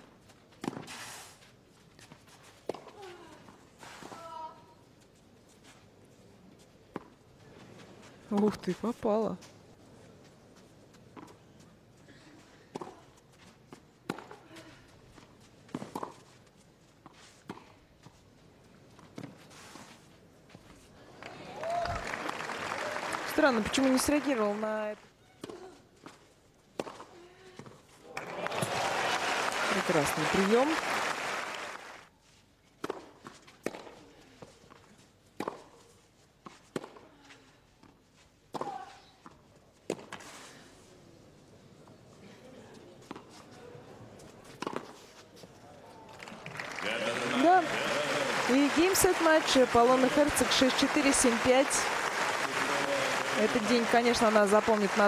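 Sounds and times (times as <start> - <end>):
tennis ball bouncing: 12.7 - 13.0, 13.7 - 14.4, 15.7 - 16.4, 26.8 - 27.8, 32.8 - 34.0, 35.4 - 35.8, 36.4 - 37.0, 38.5 - 40.2, 44.5 - 45.0
racket hitting tennis ball: 14.0 - 14.4, 15.7 - 16.3, 32.8 - 34.0, 35.4 - 35.8, 38.5 - 39.0, 39.9 - 40.3, 44.6 - 45.0
tennis racket striking ball: 15.7 - 16.3, 35.4 - 35.8.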